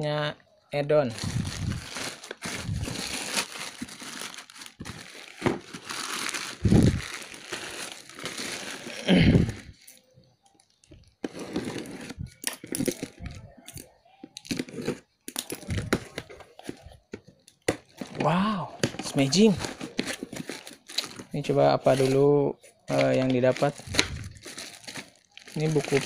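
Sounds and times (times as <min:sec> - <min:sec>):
plastic bag crinkling: 0:01.1 - 0:13.8, 0:19.0 - 0:26.0.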